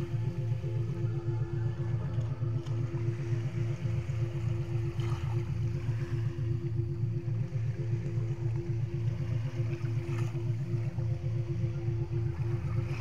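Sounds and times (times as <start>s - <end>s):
faint sea waves on shore: 0.0s - 13.0s
low pulsing synth drone: 0.0s - 13.0s.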